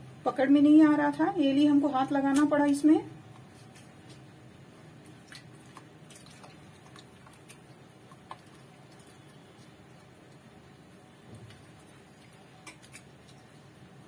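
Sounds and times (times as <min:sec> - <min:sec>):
hand squeezing butter wet sounds: 0:05.0 - 0:10.5.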